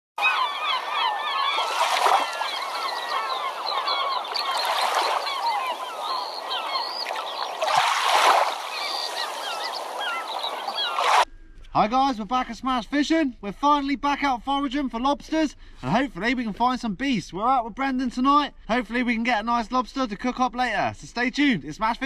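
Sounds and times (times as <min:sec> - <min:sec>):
flock of birds calling: 0:00.2 - 0:11.3.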